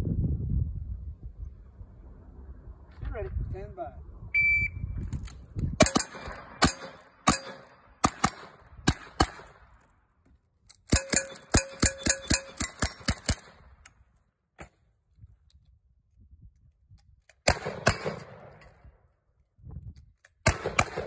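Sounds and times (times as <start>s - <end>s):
handgun shots: 5.8s - 9.6s, 17.4s - 18.4s, 20.4s - 21.0s
rifle shots with ringing: 5.8s - 9.6s, 10.9s - 13.6s, 17.4s - 18.6s, 20.4s - 21.0s.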